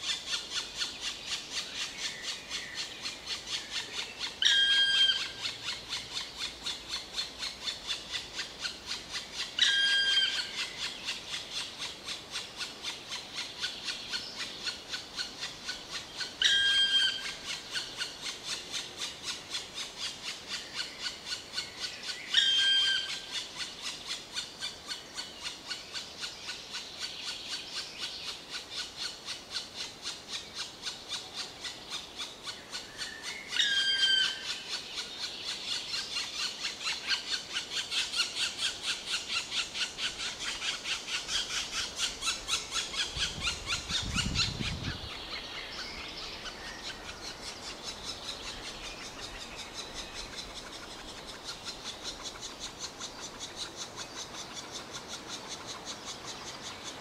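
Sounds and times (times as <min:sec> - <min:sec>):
loud squealing calls: 0:04.4 - 0:05.8.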